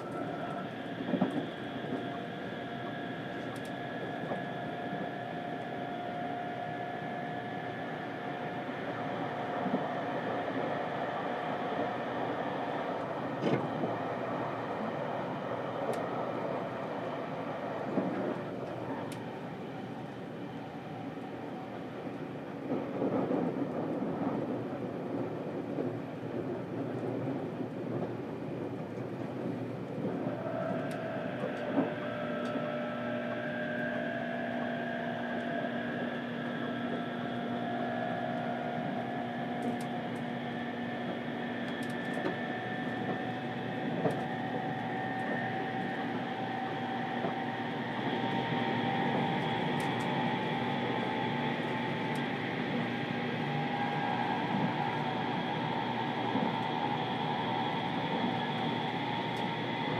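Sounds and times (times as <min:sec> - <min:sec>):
traction motor whine rising: 0:00.0 - 0:21.6, 0:30.1 - 0:59.9
train wheels rumbling on rail: 0:00.0 - 0:59.9.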